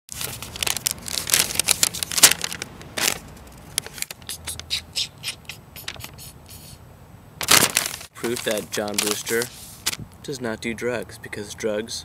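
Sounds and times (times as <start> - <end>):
crinkling and rustling: 0.1 - 4.2, 7.4 - 10.0.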